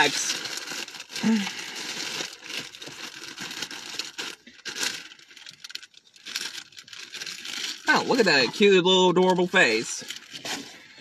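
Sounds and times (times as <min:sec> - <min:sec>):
packaging ripping: 0:00.0 - 0:08.5
packaging crinkling and rustling: 0:00.0 - 0:11.0.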